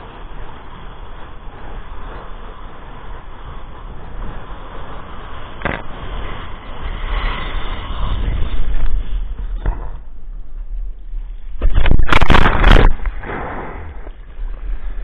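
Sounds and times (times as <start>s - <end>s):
wind buffeting microphone: 0.0s - 15.0s
water splashing on camera: 11.6s - 14.4s.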